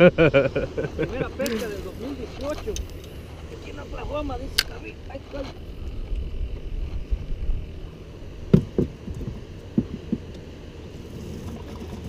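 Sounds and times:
wind and water rumble: 0.0 - 12.0
knocks on a boat: 8.5 - 10.3.

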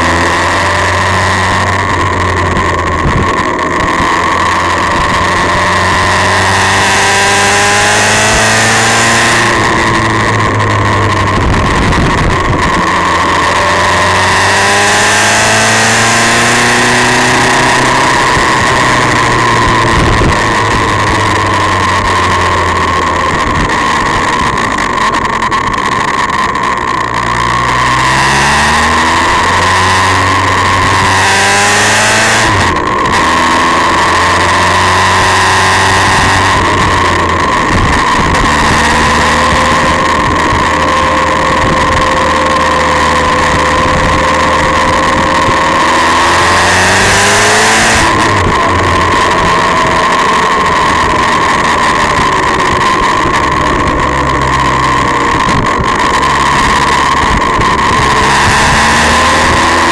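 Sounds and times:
vehicle engine shifting gears: 0.0 - 59.9
wind and road noise: 0.0 - 59.9.

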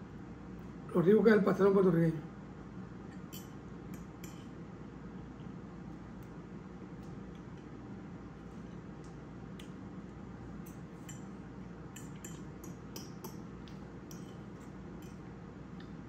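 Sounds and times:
steady low hum: 0.0 - 16.0
fork clicking against a bowl: 3.2 - 4.5, 10.6 - 11.3, 11.9 - 15.2.

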